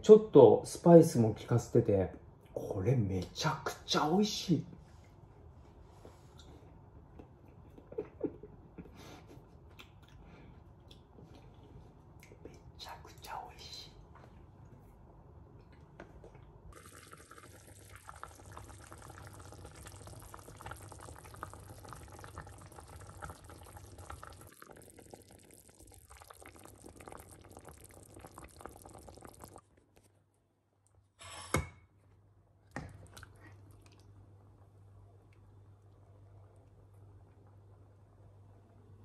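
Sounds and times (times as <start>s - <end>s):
soup bubbling in a pan: 16.7s - 30.0s.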